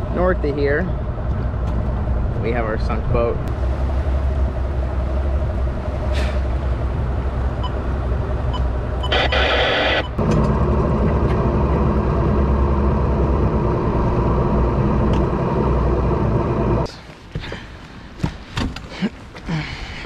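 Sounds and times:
outboard motor rumbling: 0:01.0 - 0:09.0, 0:10.2 - 0:16.9.

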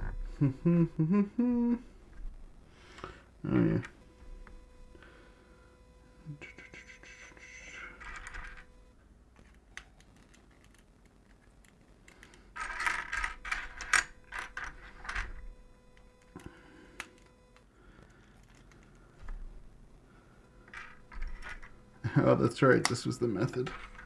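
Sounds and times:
plastic bricks clicking and clattering: 0:09.9 - 0:15.4, 0:23.6 - 0:24.0.

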